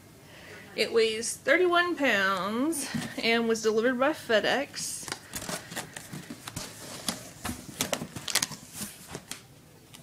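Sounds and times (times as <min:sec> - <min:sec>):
paper and foil crinkling: 0:05.1 - 0:09.4
hands rummaging in cardboard box: 0:05.2 - 0:09.3.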